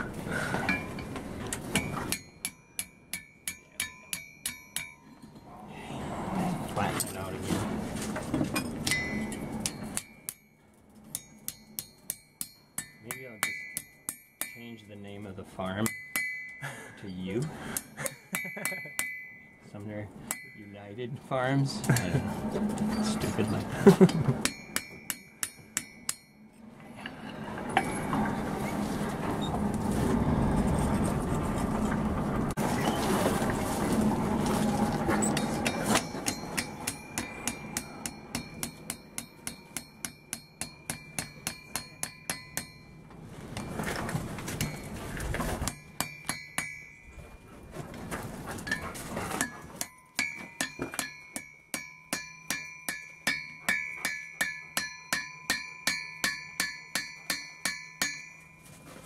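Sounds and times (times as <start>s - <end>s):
hammer striking iron on anvil: 0.7s - 5.2s, 8.6s - 14.9s, 15.8s - 16.6s, 17.8s - 19.5s, 20.2s - 20.8s, 24.0s - 26.4s, 35.2s - 43.0s, 45.6s - 47.0s, 49.4s - 58.6s.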